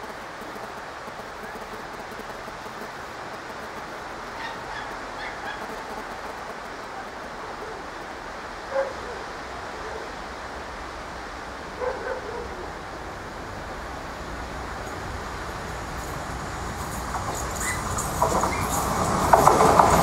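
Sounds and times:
dog barking: 8.7s - 10.1s, 11.8s - 12.7s.

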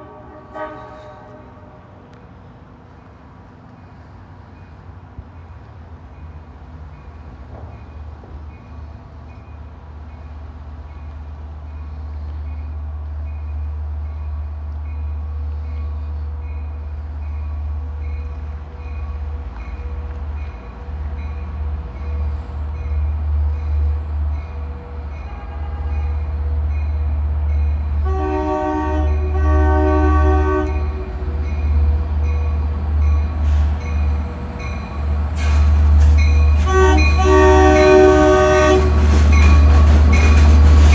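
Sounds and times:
train horn blasts: 0.0s - 1.9s, 25.0s - 26.3s, 28.0s - 31.3s, 36.6s - 39.8s
diesel train rumble: 0.0s - 40.9s
crossing bell dinging: 36.1s - 40.6s.

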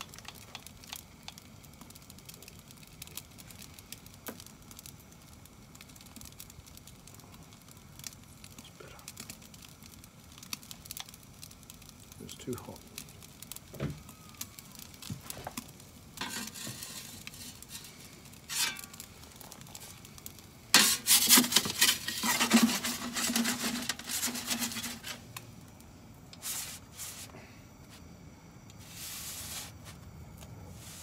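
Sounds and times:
metal pizza peel scraping on stone: 16.2s - 19.0s, 20.7s - 25.2s.

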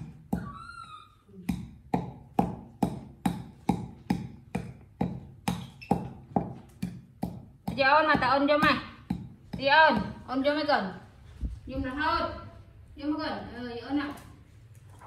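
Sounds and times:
wooden pestle pounding in mortar: 0.0s - 0.7s, 1.4s - 10.5s.

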